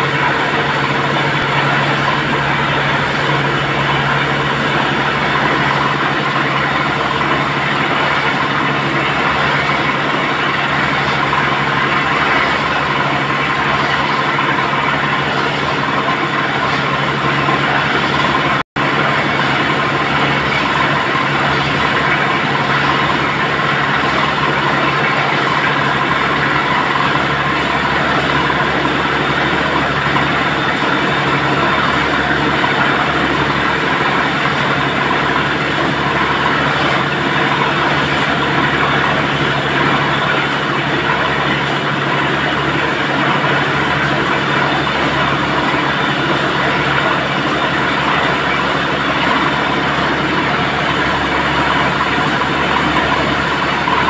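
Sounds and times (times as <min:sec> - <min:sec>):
drilling rig machine hum: 0:00.0 - 0:54.0
water gushing: 0:00.0 - 0:54.0.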